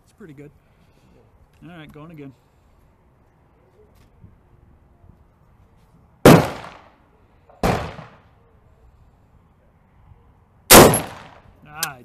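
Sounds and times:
gunshots: 6.2s - 6.9s, 7.6s - 8.2s, 10.7s - 11.4s.

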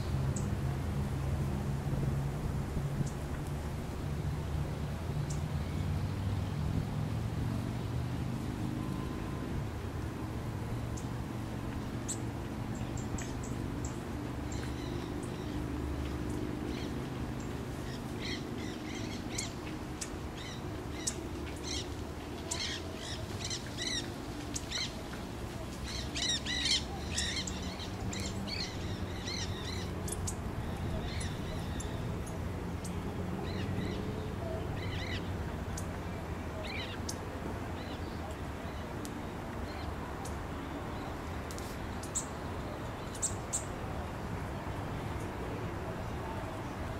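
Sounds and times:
birds calling: 25.8s - 36.0s.

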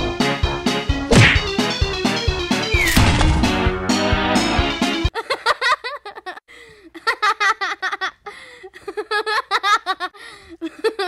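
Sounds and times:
person giggling: 5.2s - 11.0s.

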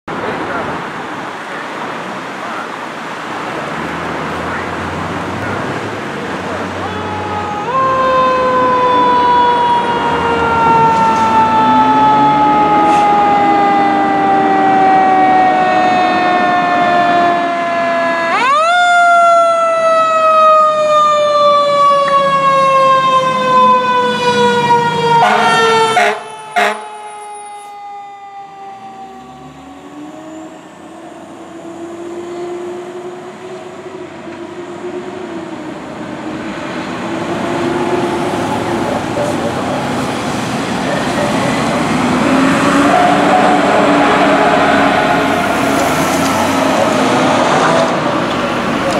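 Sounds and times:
passing traffic: 0.1s - 48.9s
mechanical siren wailing: 6.8s - 33.2s
heavy truck engine revving: 29.0s - 48.9s.

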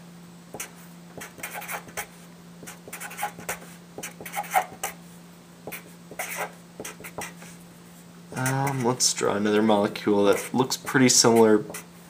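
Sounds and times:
marker pen scratching on whiteboard: 0.6s - 5.0s, 5.7s - 7.6s, 8.4s - 9.0s, 10.2s - 11.9s
marker squeaks: 0.6s - 5.0s, 5.7s - 7.4s, 10.3s - 11.9s.

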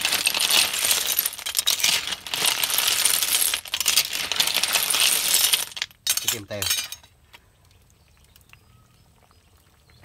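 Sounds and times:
shells clattering in a metal wok: 0.0s - 7.1s.

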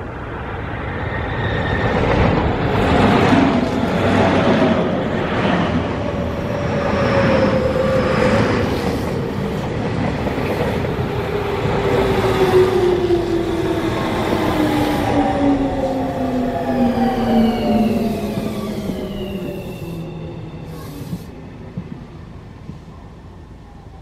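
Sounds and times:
train wheels rumbling on rails: 0.0s - 23.6s
train motor whine: 10.3s - 22.0s.

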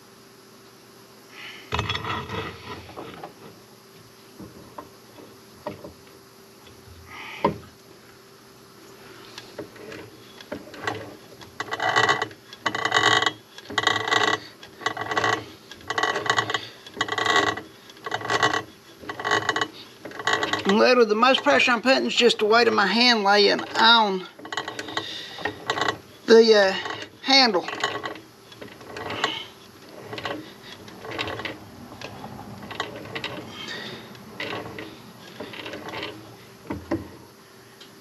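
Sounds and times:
hand drill cutting metal: 10.8s - 31.6s.

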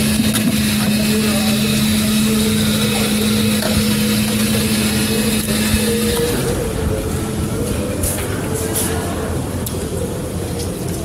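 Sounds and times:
ice-shaving machine motor humming: 0.0s - 6.8s.

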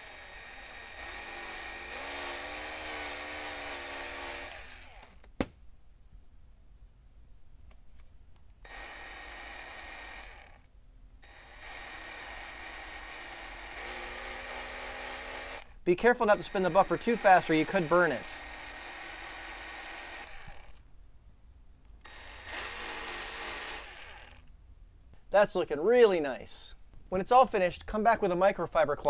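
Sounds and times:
cordless buffer whining: 0.0s - 5.4s, 8.5s - 20.9s, 21.8s - 24.6s.

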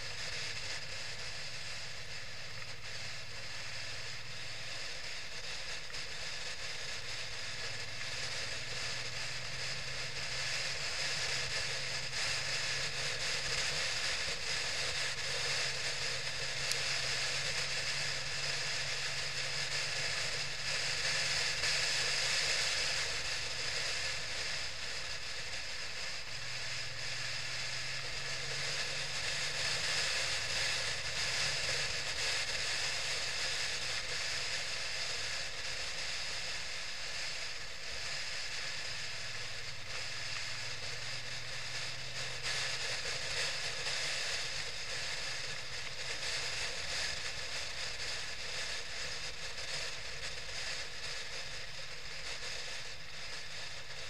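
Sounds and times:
motorcycle engine drone: 0.0s - 54.0s
wind and road rush: 0.0s - 54.0s.

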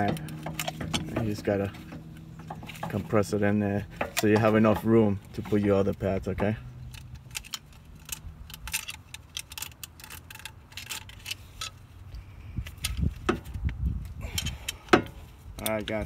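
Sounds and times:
metal clamp clicking and clinking: 5.6s - 11.8s.

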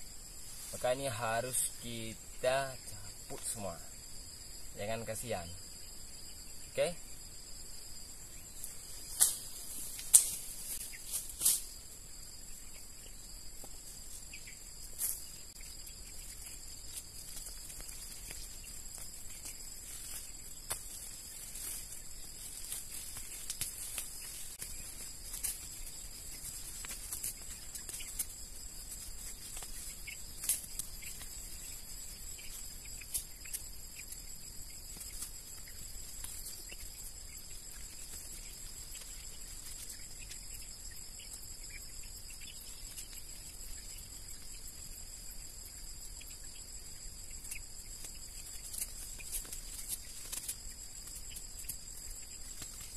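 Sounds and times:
high-pitched insect chorus: 0.0s - 52.9s
weeds rustling and snapping: 9.0s - 11.7s, 16.9s - 31.6s, 48.0s - 52.9s.

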